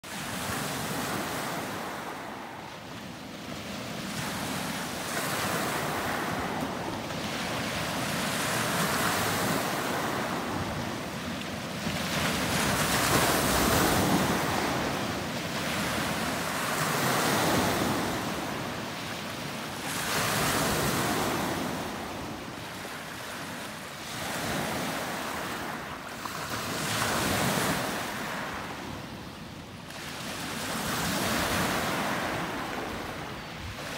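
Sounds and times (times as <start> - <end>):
waves breaking on pebble beach: 3.4 - 29.0.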